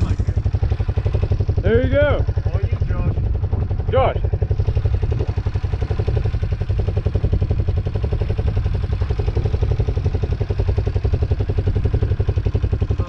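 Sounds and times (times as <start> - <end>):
atv engine idling: 0.0 - 13.0.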